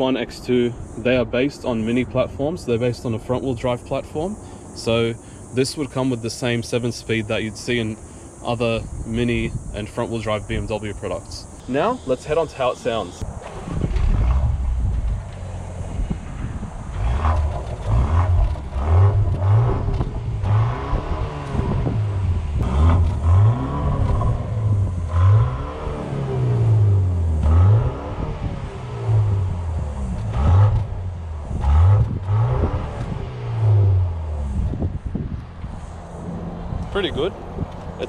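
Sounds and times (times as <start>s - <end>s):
car engine revving: 11.1s - 38.0s.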